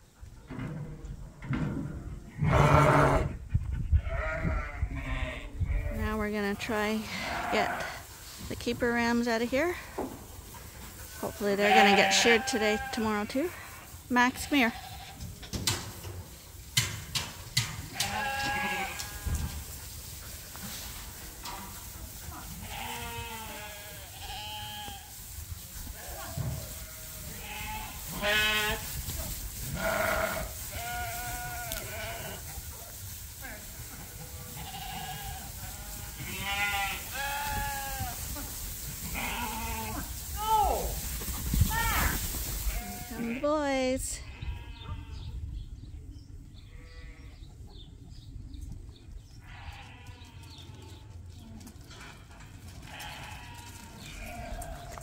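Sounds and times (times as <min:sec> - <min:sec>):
sheep bleating: 0:07.0 - 0:08.0, 0:11.3 - 0:13.6, 0:18.0 - 0:19.3, 0:22.6 - 0:25.0, 0:26.0 - 0:28.8, 0:29.8 - 0:32.4, 0:34.5 - 0:38.1, 0:39.1 - 0:40.0.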